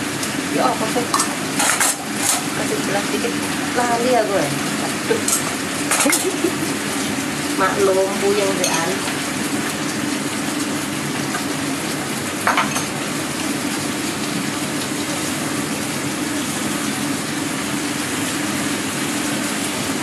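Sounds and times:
vegetables sizzling in a wok: 0:00.0 - 0:20.0
spatula stirring: 0:01.1 - 0:02.9.

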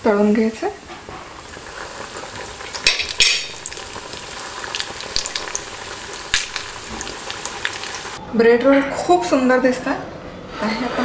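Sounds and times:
bread rolls deep-frying in oil: 0:00.0 - 0:08.2.

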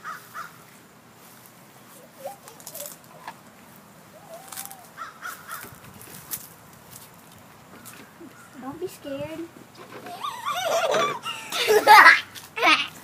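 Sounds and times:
crow cawing: 0:00.0 - 0:00.6, 0:04.2 - 0:05.8.

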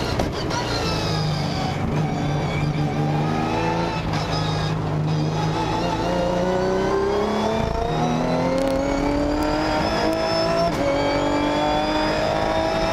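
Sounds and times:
race car engine accelerating: 0:00.8 - 0:12.9.

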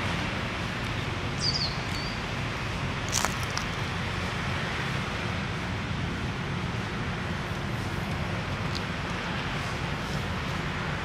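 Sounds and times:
distant road traffic: 0:00.0 - 0:11.0
bird chirp: 0:01.4 - 0:02.2.

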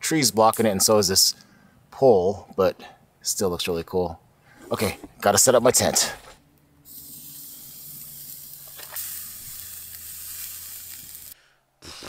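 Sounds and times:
steak sizzling on a grill: 0:06.9 - 0:11.4.

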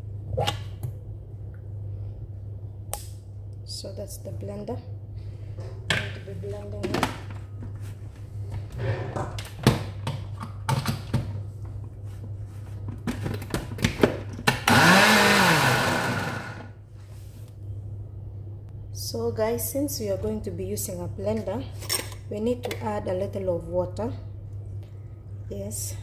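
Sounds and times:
blender motor running: 0:14.6 - 0:16.8.

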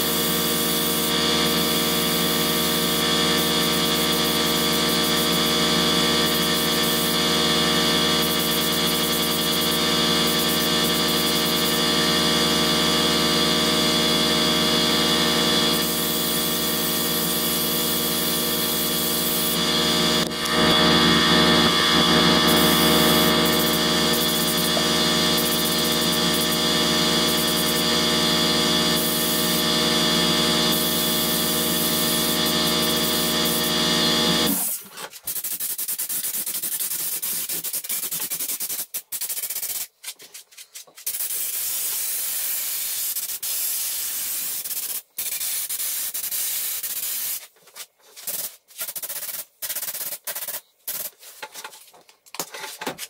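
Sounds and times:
air compressor motor humming: 0:00.0 - 0:34.8
spray gun air hissing in spurts: 0:35.3 - 0:39.9, 0:41.0 - 0:47.5, 0:48.2 - 0:51.2.

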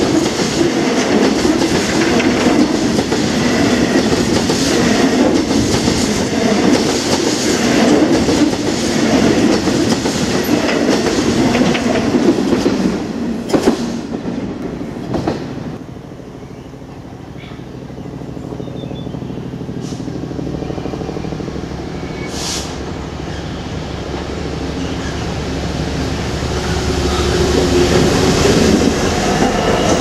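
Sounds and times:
train wheels clattering over rail joints: 0:00.0 - 0:15.6.

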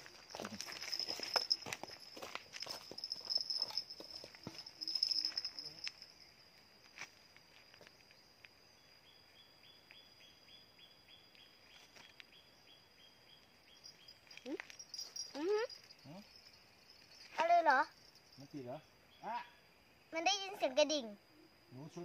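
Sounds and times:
footsteps on dirt: 0:00.0 - 0:06.1
bell jingling: 0:00.0 - 0:06.3, 0:13.8 - 0:18.9
high insect drone: 0:00.0 - 0:22.0.

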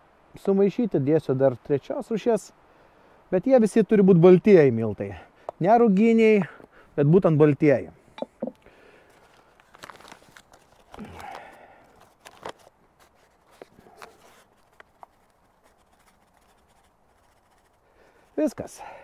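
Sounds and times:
flour bag crinkling: 0:09.1 - 0:17.8.

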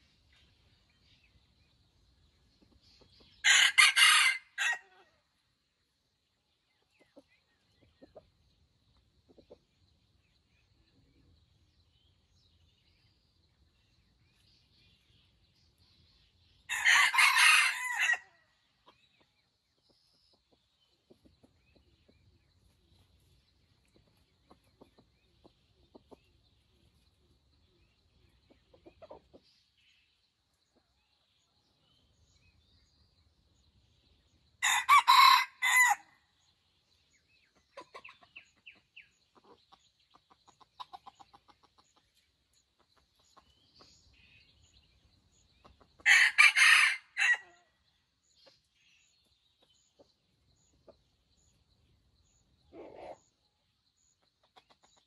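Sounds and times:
rooster crowing: 0:03.5 - 0:04.9, 0:16.7 - 0:18.3, 0:34.6 - 0:36.1, 0:46.1 - 0:47.5.

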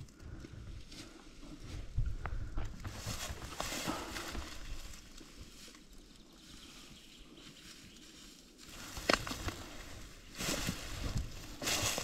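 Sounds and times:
footsteps crunching through dry brush: 0:00.6 - 0:12.0
branch snapping: 0:08.9 - 0:09.8.

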